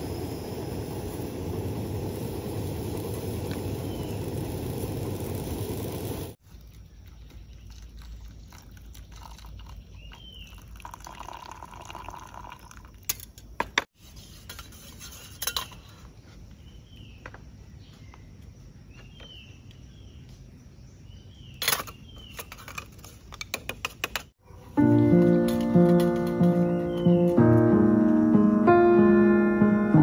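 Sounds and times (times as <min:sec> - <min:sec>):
bird chirping: 0:06.6 - 0:10.9, 0:15.3 - 0:22.6, 0:24.4 - 0:27.8
utensils and dishes clinking: 0:14.4 - 0:16.0, 0:25.1 - 0:26.8.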